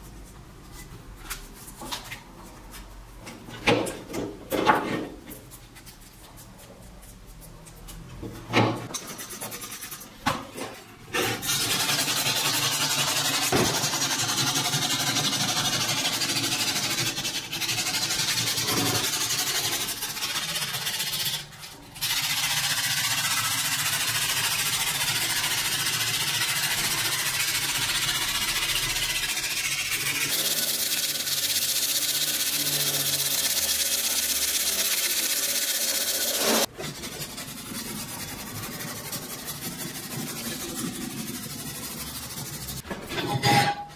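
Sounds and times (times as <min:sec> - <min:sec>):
sandpaper scratching steel blade: 0:08.9 - 0:10.2, 0:11.4 - 0:42.8.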